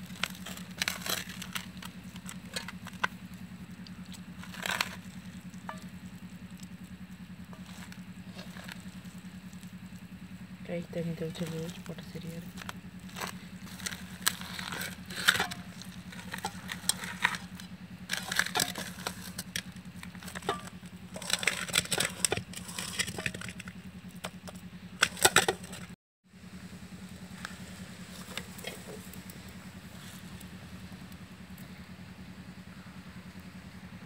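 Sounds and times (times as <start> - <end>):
hands mixing wet batter: 0.0 - 26.0
steady low hum: 0.0 - 34.0.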